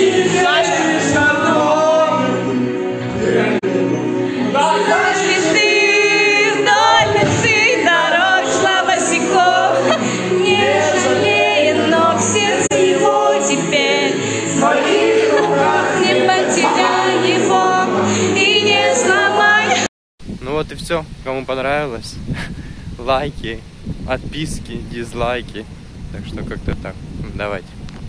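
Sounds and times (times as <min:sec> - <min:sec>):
song with singing voices: 0:00.0 - 0:19.9.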